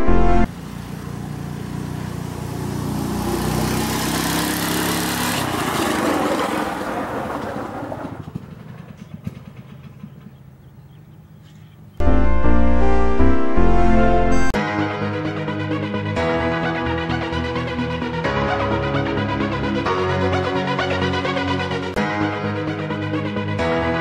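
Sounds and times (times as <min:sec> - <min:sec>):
go-kart engine driving past: 0:00.4 - 0:10.6.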